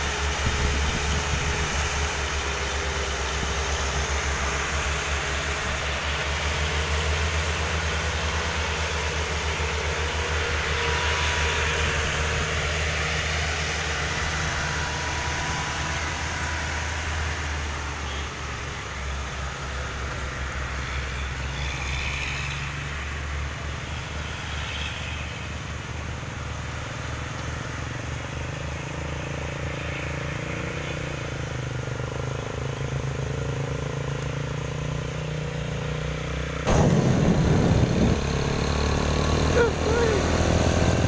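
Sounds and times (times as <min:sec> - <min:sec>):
rough rumble of wind and engine: 0:00.0 - 0:41.0
vehicles passing: 0:00.0 - 0:41.0.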